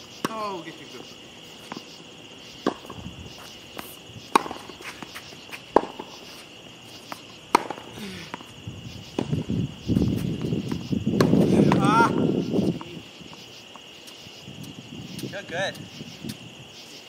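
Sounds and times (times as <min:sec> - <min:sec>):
crickets chirring: 0:00.0 - 0:17.0
tennis ball pops off racquet: 0:02.6 - 0:03.0, 0:03.8 - 0:04.7, 0:05.7 - 0:06.2, 0:07.1 - 0:08.4
shoe scuffs: 0:02.8 - 0:12.0
ball bouncing on court: 0:04.3 - 0:06.1, 0:07.1 - 0:07.9, 0:10.4 - 0:12.1.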